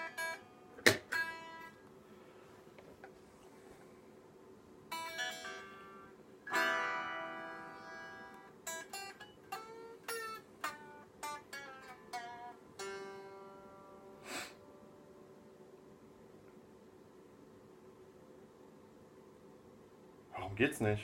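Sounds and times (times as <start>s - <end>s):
plucked guitar notes: 0.0s - 1.8s, 4.9s - 15.4s
unamplified guitar chord ringing: 4.9s - 15.5s.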